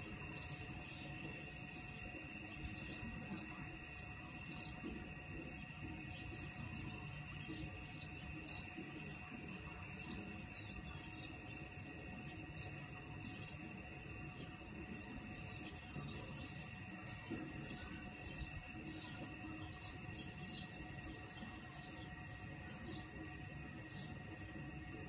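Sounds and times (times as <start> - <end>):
steady high-pitched tone: 0.0 - 25.0.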